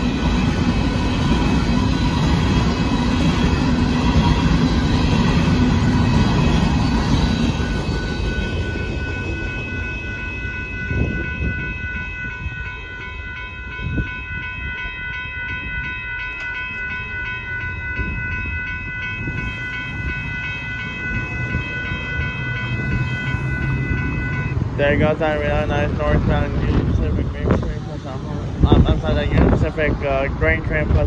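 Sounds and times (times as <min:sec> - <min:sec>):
crossing warning bell ringing: 0:00.0 - 0:31.0
freight cars rumbling past: 0:15.5 - 0:31.0.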